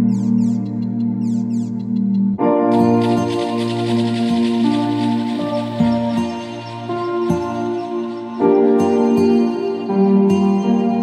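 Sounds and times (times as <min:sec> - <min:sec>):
soft instrumental music: 0:00.0 - 0:11.0.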